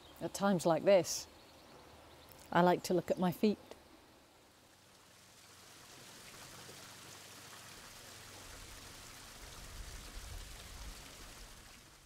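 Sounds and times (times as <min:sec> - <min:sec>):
water trickling and splashing: 0:04.1 - 0:12.0.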